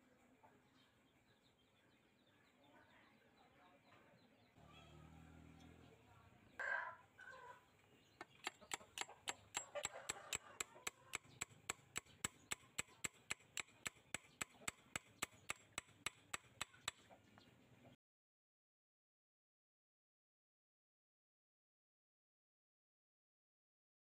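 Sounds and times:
chicken clucking: 0:06.5 - 0:15.6
sharp tapping: 0:08.2 - 0:17.1.

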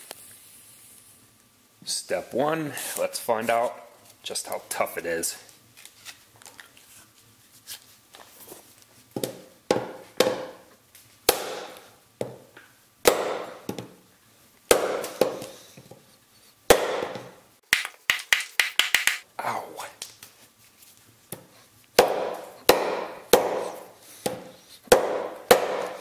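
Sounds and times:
hatchet knocking on wooden stump: 0:22.0 - 0:26.0.

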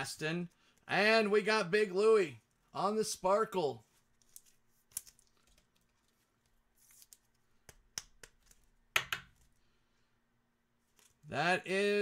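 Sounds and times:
cards and plastic sleeves rustling: 0:02.3 - 0:09.6, 0:10.8 - 0:11.3.

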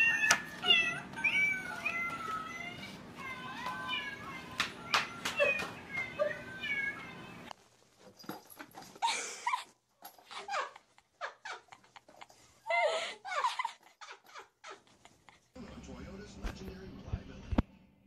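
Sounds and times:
cat meowing: 0:00.0 - 0:07.5
rustling: 0:00.1 - 0:10.4.

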